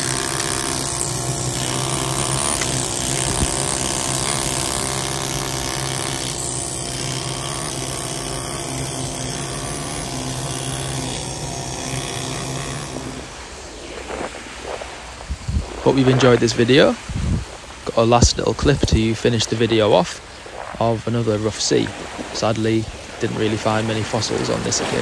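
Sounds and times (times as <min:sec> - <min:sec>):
air scribe buzzing: 0:00.0 - 0:25.0.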